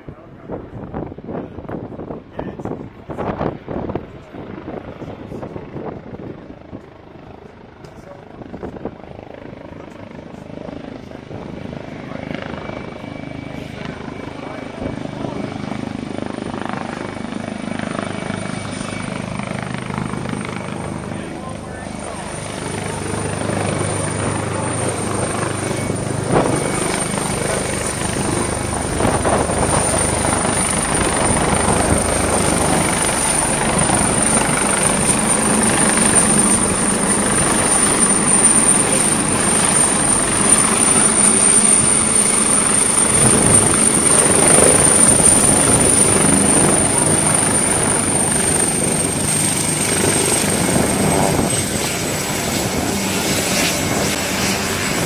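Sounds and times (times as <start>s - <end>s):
helicopter rotor: 0.0s - 55.0s
high turbine whine: 0.0s - 55.0s.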